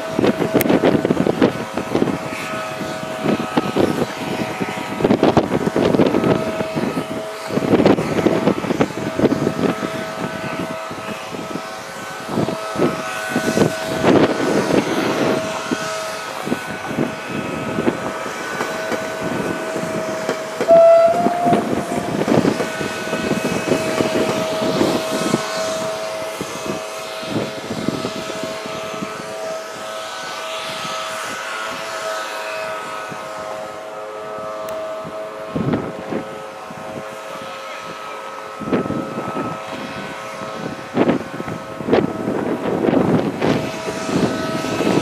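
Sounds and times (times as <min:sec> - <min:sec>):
high whine: 0:00.0 - 0:26.8
wind on microphone: 0:00.0 - 0:32.0, 0:34.3 - 0:45.0
passenger train passing: 0:00.0 - 0:45.0.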